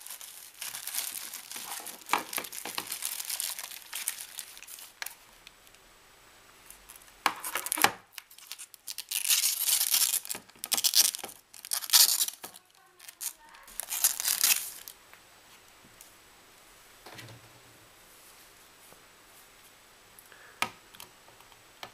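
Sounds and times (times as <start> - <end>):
plastic film peeling: 0.0 - 5.8, 6.7 - 15.0.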